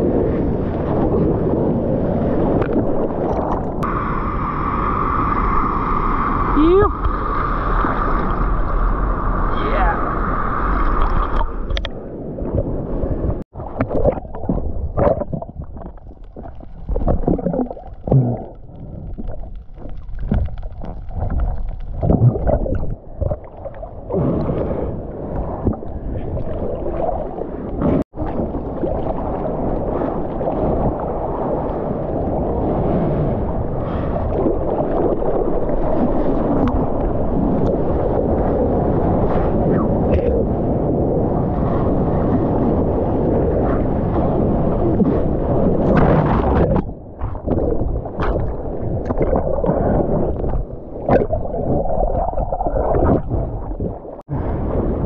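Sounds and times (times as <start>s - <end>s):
wind: 0.0s - 55.0s
water sloshing and splashing: 2.4s - 3.9s, 10.7s - 31.8s, 44.8s - 54.4s.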